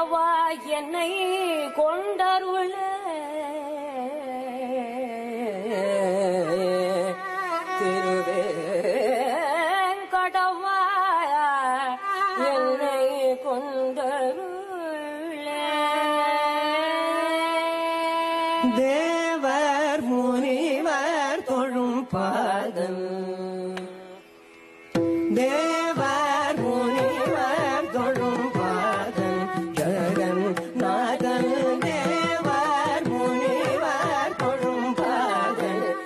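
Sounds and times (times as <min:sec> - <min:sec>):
bowed violin melody: 0:06.9 - 0:09.7, 0:23.8 - 0:36.0.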